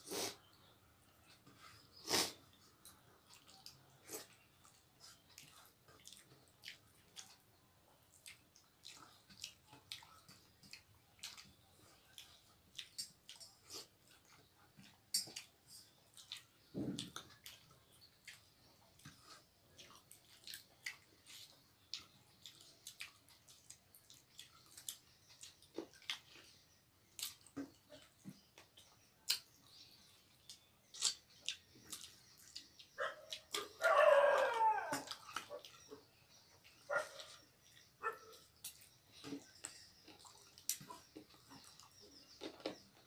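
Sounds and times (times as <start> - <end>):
lip smacks and chewing: 1.2 - 43.0
wavering whining cry: 33.7 - 35.6.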